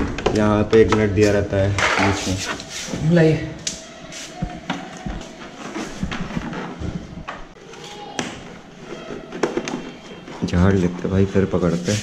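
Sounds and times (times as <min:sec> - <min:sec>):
plastic parts clicking and knocking: 0:08.2 - 0:10.8.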